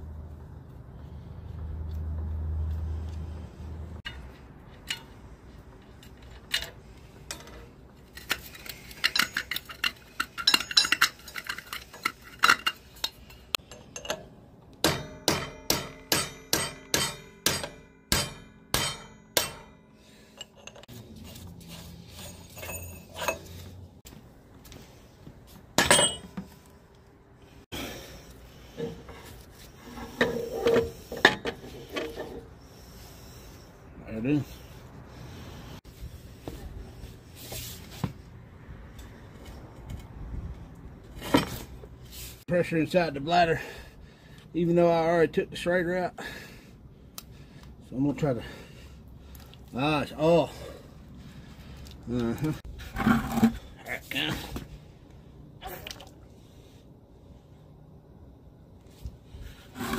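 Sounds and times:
metallic clinks: 8.7 - 14.2, 22.2 - 23.6
ringing metal-on-metal strikes: 14.8 - 19.9.

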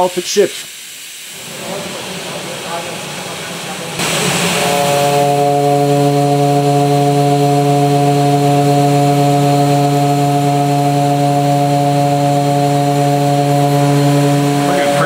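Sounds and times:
machine cutting gear steady hum: 1.7 - 15.0.

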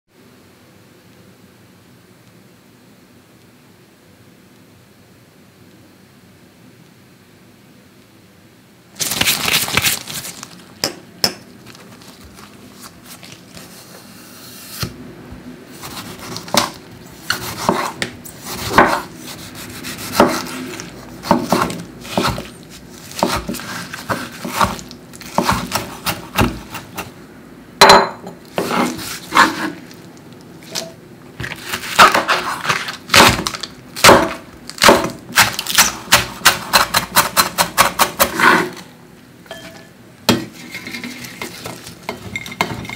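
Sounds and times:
knife chopping on wooden board: 15.8 - 22.5, 23.1 - 27.1, 27.8 - 29.8, 30.8 - 38.8.

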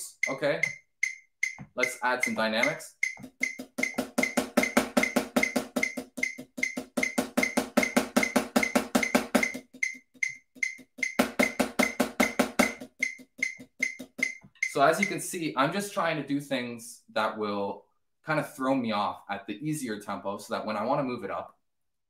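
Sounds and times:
metronome click: 0.0 - 15.2
snare drum strokes: 0.2 - 15.2.

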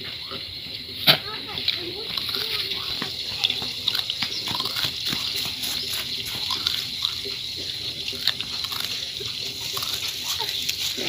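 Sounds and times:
high-pitched insect chorus: 0.0 - 11.0
biting and chewing fruit: 1.1 - 11.0.

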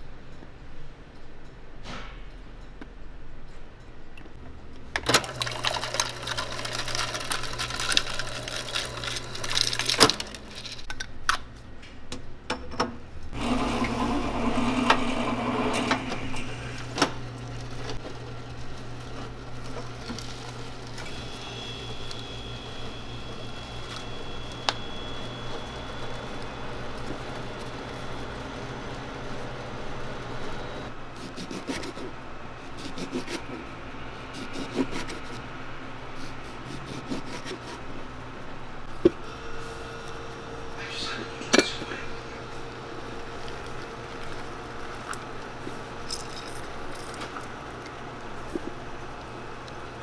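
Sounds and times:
can seaming machine whirring: 5.0 - 10.9, 13.4 - 30.9
steady low hum: 15.4 - 50.0.

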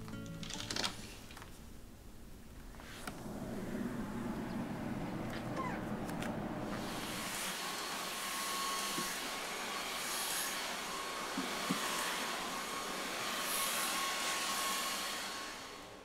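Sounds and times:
stick vacuum cleaner running: 2.8 - 16.0
vacuum knocking on floor: 11.3 - 12.0.

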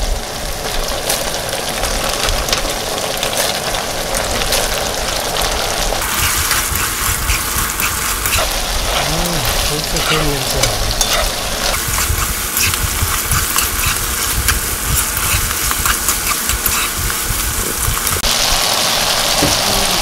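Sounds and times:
food sizzling in a wok: 0.0 - 20.0
steady low rumble: 6.0 - 16.3.

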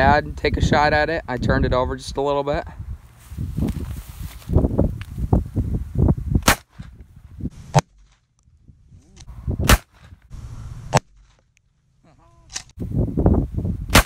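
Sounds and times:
shotgun shots: 6.4 - 6.8, 9.6 - 10.1
low rumbling noise: 8.7 - 11.0.

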